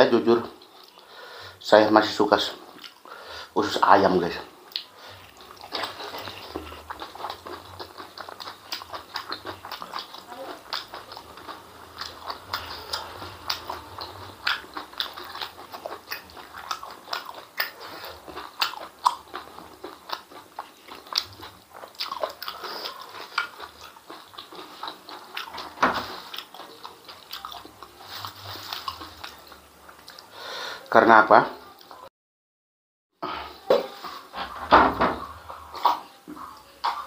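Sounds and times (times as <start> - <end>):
wet chewing and lip-smacking: 0.6 - 1.1, 2.5 - 3.1, 4.6 - 30.3.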